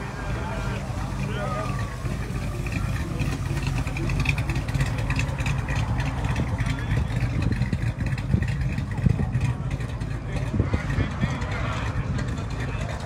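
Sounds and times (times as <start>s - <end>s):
truck engine rumbling past: 0.0s - 13.0s.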